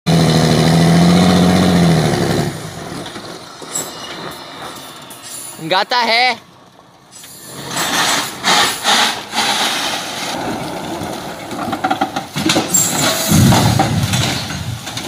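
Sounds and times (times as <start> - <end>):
truck diesel engine surging: 0.1 - 5.9, 6.5 - 14.2
tyres skidding on gravel: 0.1 - 15.0
logs falling with heavy rumble: 9.4 - 15.0.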